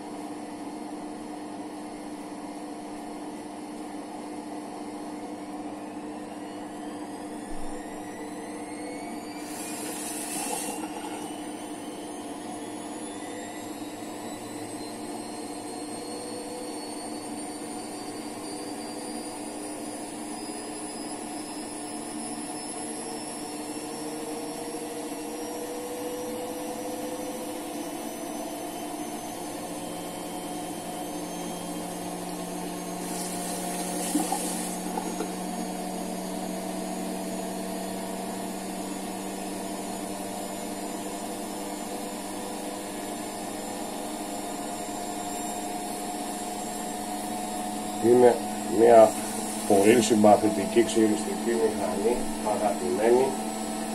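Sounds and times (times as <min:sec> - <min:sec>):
small motor humming: 0:06.4 - 0:53.9.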